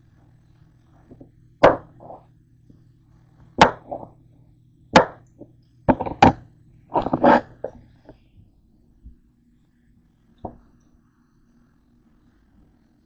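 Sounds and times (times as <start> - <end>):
knife chopping on cutting board: 1.6 - 2.2, 3.6 - 4.1, 5.0 - 5.2, 5.9 - 7.8.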